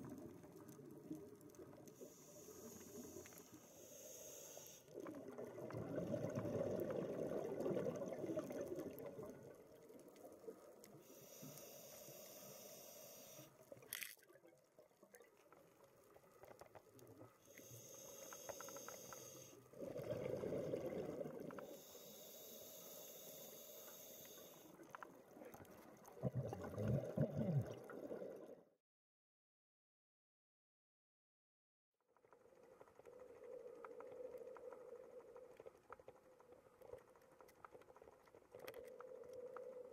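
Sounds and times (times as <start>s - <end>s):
regulator inhalation hiss: 2.0s - 4.9s, 11.0s - 13.5s, 21.7s - 24.7s
exhaled air bubbling underwater: 4.5s - 12.3s, 16.8s - 28.7s.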